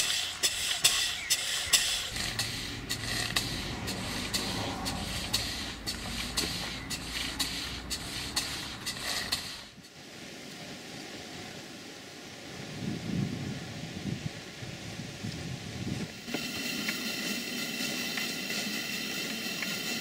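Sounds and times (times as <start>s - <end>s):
low steady rumble: 0.0s - 9.8s
steam engine exhaust beats: 0.0s - 10.0s, 15.1s - 20.0s.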